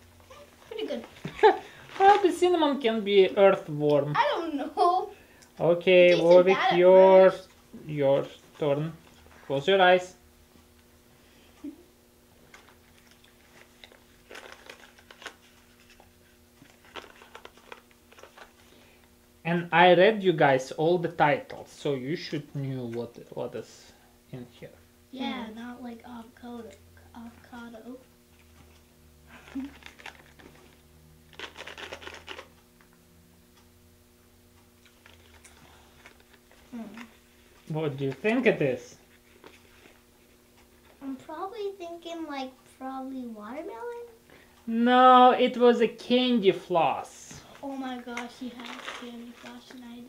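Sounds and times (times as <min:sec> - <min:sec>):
faint steady hum: 0:00.0 - 0:50.0
child crunching jelly bean: 0:12.5 - 0:18.7, 0:29.3 - 0:32.6, 0:34.8 - 0:37.2
small sharp clicks and rattles: 0:31.3 - 0:32.6, 0:48.0 - 0:49.8.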